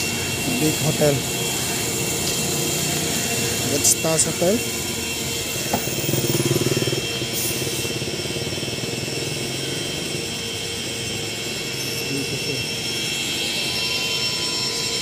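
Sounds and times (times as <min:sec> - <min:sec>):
traffic hum: 0:00.0 - 0:13.8
vehicle engine passing: 0:05.8 - 0:10.0.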